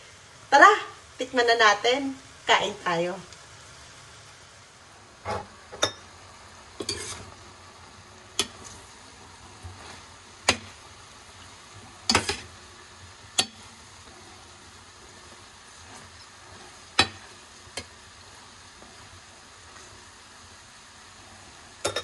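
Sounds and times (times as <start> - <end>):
food sizzling: 0.0 - 22.0.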